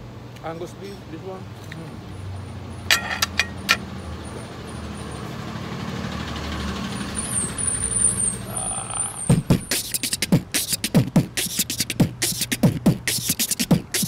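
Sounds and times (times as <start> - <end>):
vehicle engine humming: 1.2 - 14.0.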